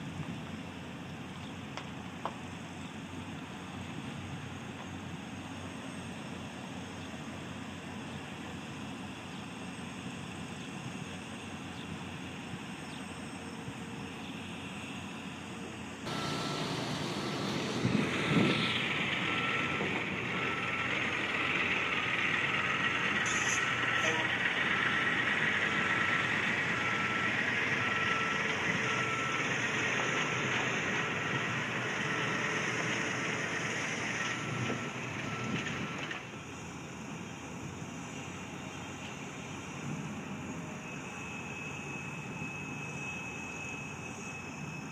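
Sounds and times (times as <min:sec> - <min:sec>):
construction machinery engine rumble: 0:00.0 - 0:42.5
backup alarm beeping: 0:16.1 - 0:32.7.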